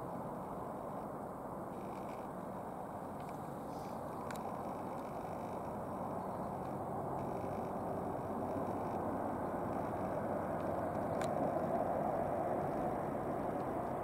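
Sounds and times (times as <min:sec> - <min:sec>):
jet engines at taxi power: 0:00.0 - 0:14.0.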